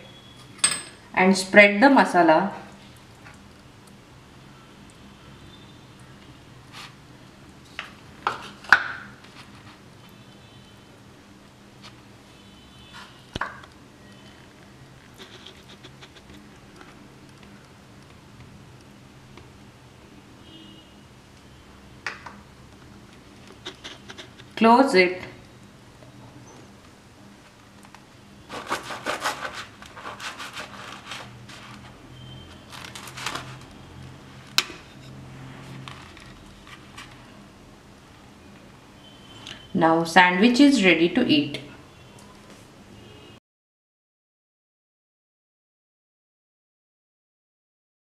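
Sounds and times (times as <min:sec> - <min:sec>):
spoon scraping on bread: 0:15.1 - 0:16.5, 0:23.5 - 0:24.6, 0:28.5 - 0:33.6
knife sawing through toasted bread: 0:28.5 - 0:31.8.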